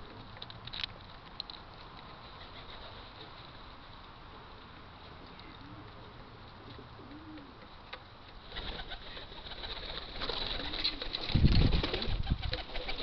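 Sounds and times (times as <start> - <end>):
pigeons cooing: 2.1 - 3.4, 5.4 - 7.7, 8.4 - 13.0
pigeon wings flapping: 8.4 - 13.0.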